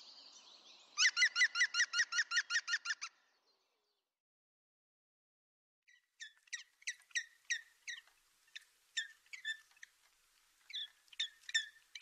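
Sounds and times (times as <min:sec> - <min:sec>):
woodpecker calling: 0:01.0 - 0:03.2, 0:05.9 - 0:12.0.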